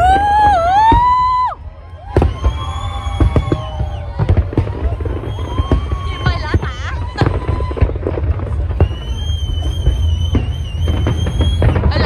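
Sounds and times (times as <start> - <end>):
fireworks cracking and popping: 0.0 - 12.0.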